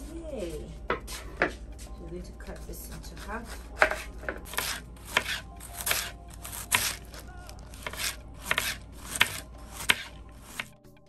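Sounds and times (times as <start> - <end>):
knife slicing cabbage on board: 3.0 - 10.7.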